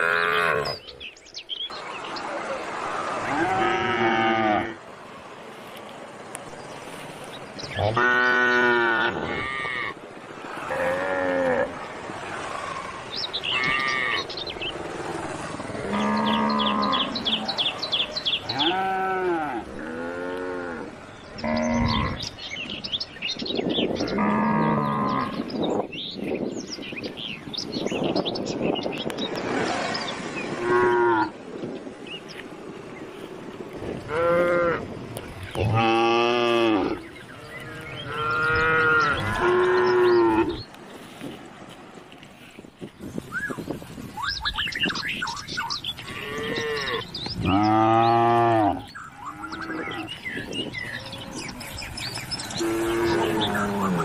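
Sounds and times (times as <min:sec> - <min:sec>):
cows mooing: 0:00.0 - 0:00.8, 0:03.2 - 0:04.8, 0:07.6 - 0:10.0, 0:10.6 - 0:11.8, 0:12.4 - 0:14.4, 0:15.7 - 0:17.6, 0:18.4 - 0:22.3, 0:24.0 - 0:25.4, 0:30.5 - 0:31.3, 0:34.0 - 0:34.9, 0:35.5 - 0:40.6, 0:46.0 - 0:54.0.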